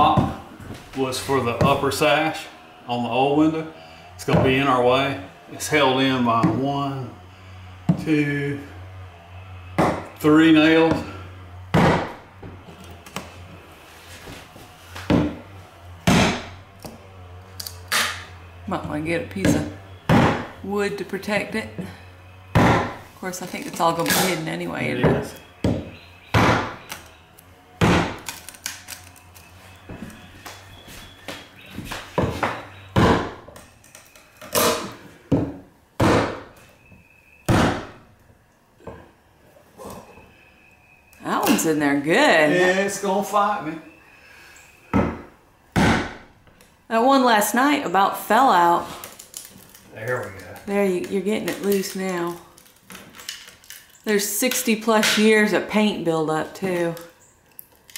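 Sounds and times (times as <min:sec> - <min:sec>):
wood cracking: 0:22.0 - 0:36.9, 0:48.3 - 0:55.5, 0:56.5 - 0:57.9.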